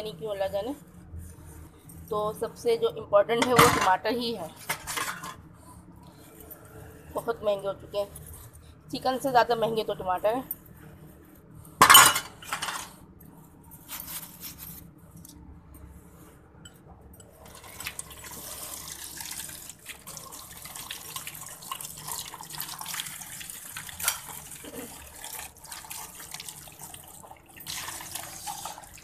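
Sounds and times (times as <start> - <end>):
utensils clattering in metal sink: 3.4 - 4.0, 4.6 - 5.4, 11.8 - 12.9
tap water running: 17.4 - 29.0.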